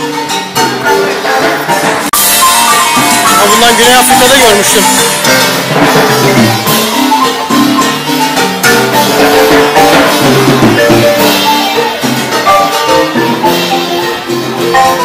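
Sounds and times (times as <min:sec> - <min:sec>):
marimba music: 0:00.0 - 0:15.0.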